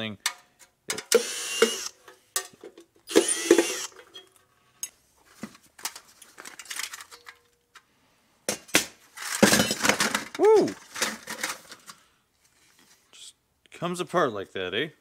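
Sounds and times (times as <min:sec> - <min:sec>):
metal clatter: 0:09.2 - 0:11.7.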